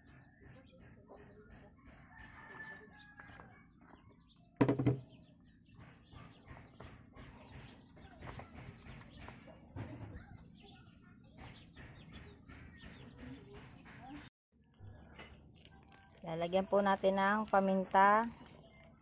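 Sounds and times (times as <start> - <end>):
hands handling food clicks and rustles: 15.1 - 19.0.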